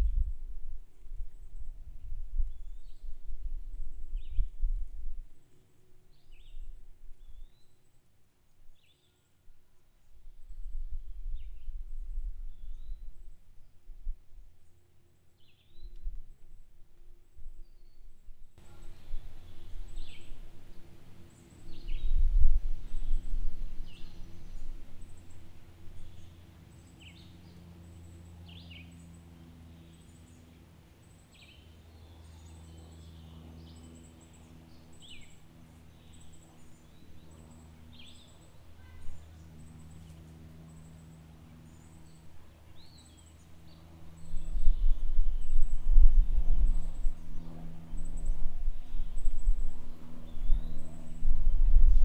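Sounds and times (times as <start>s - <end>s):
gusty low rumble: 0.0s - 5.4s, 18.5s - 26.4s, 42.1s - 52.0s
steady low hum: 0.0s - 52.0s.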